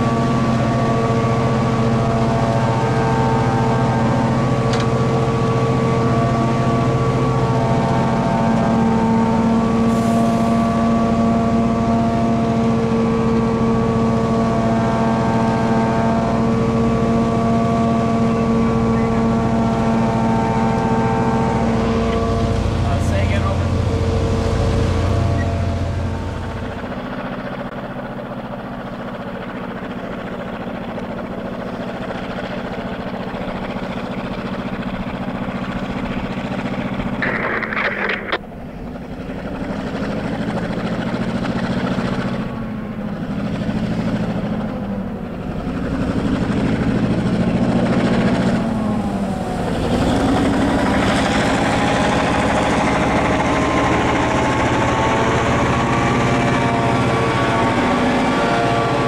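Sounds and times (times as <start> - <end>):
diesel locomotive engine under load: 0.0 - 59.0
wind and snow noise: 36.4 - 39.5
loud rush: 36.7 - 38.4.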